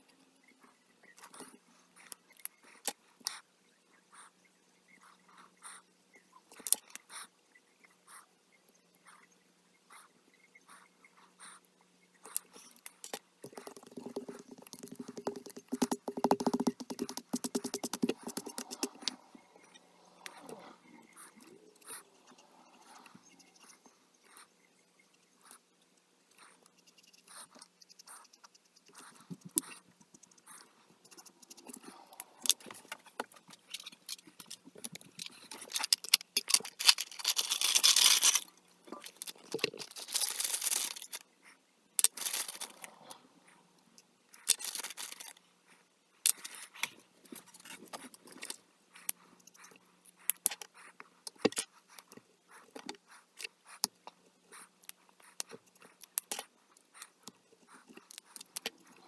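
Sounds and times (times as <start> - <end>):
marker tip scratching on paper: 13.4 - 20.6
markers rattling in a case: 33.8 - 41.2, 42.0 - 42.8.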